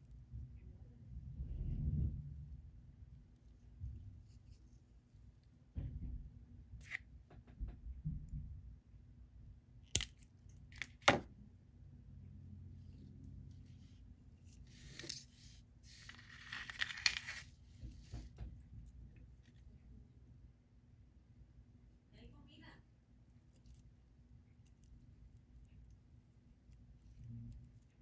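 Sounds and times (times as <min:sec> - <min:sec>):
hands handling fishing line: 0:14.4 - 0:19.7.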